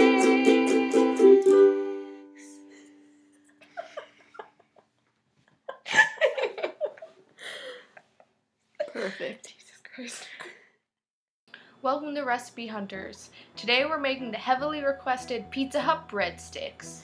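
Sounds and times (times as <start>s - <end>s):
ukulele strumming: 0.0s - 2.4s.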